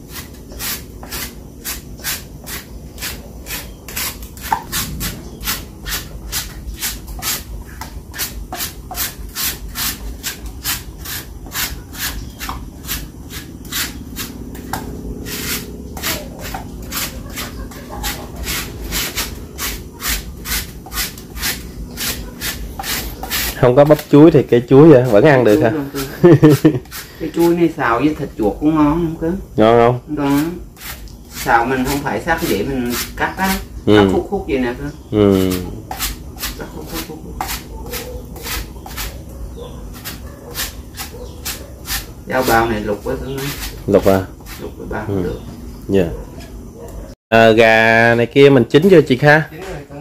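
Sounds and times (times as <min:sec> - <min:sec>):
knife rasping plant stem: 0:00.0 - 0:27.5, 0:30.2 - 0:33.6, 0:35.2 - 0:39.2, 0:39.9 - 0:44.8.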